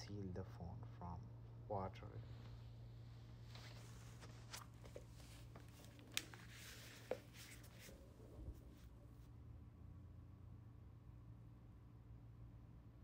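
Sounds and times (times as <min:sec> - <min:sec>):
low room hum: 0:00.0 - 0:13.0
faint clicks and taps: 0:04.8 - 0:07.9.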